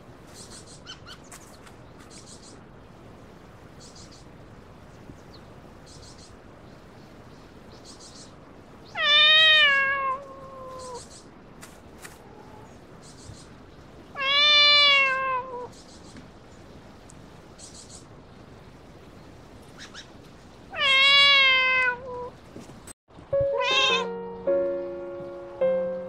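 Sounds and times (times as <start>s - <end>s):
cat yowling: 9.0s - 11.0s, 14.2s - 15.7s, 20.7s - 22.3s, 23.6s - 24.3s.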